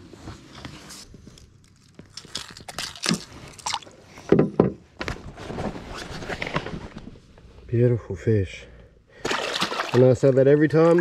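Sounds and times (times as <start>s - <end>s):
water splashing beside a boat: 9.2s - 11.0s.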